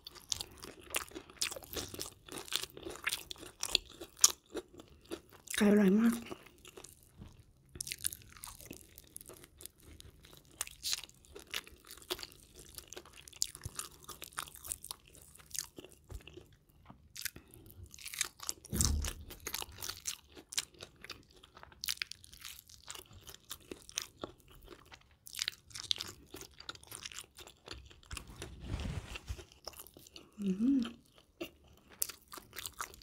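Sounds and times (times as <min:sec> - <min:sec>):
crunchy chewing: 0:00.0 - 0:05.6, 0:06.2 - 0:33.0
dull low thump: 0:18.7 - 0:19.6.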